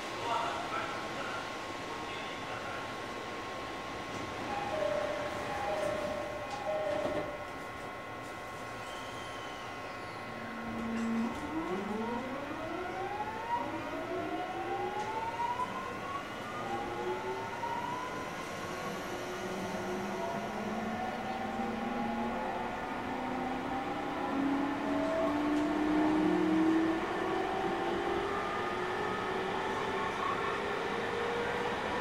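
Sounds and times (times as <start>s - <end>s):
train running noise: 2.1s - 15.2s
electric train motor whine rising: 10.3s - 31.8s.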